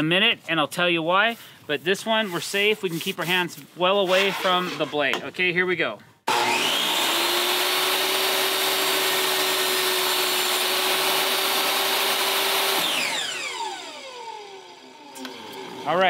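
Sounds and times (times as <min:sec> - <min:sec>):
table saw cutting board: 0:04.0 - 0:05.0, 0:06.3 - 0:16.0.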